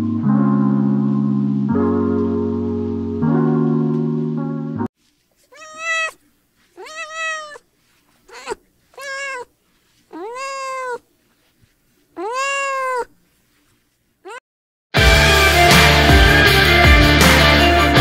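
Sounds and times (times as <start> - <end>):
kitten meowing: 5.5 - 6.2, 6.8 - 7.6, 8.3 - 9.5, 10.1 - 11.0, 12.2 - 13.1.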